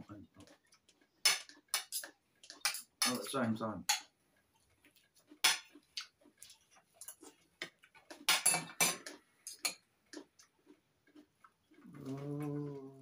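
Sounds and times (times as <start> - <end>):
cutlery clinking on china plates: 1.3 - 4.1, 8.2 - 9.8.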